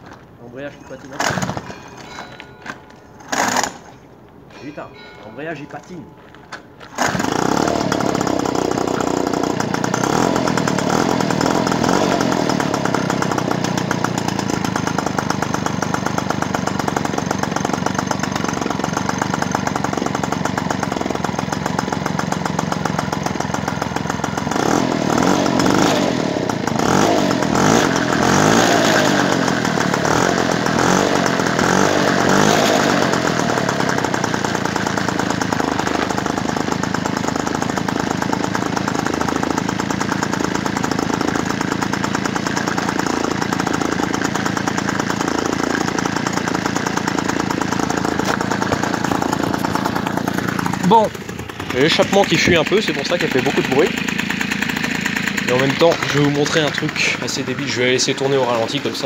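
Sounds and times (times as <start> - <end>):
moped engine running and revving: 6.9 - 59.0.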